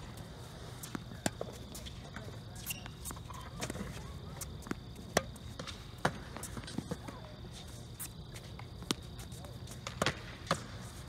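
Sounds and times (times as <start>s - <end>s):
tennis ball hit by racquets: 9.8s - 10.9s.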